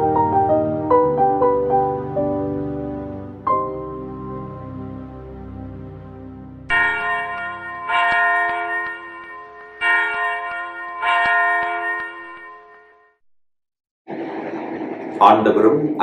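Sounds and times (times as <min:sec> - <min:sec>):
church bell ringing: 0:06.7 - 0:13.2.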